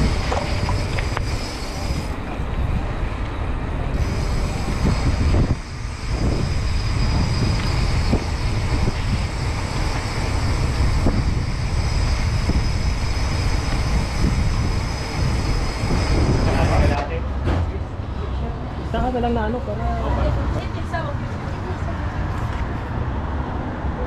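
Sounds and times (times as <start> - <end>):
wind buffeting microphone: 0.0 - 17.1.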